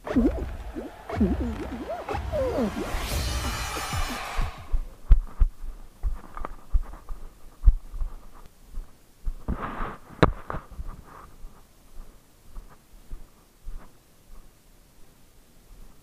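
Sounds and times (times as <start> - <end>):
footsteps on rubble: 4.7 - 9.6.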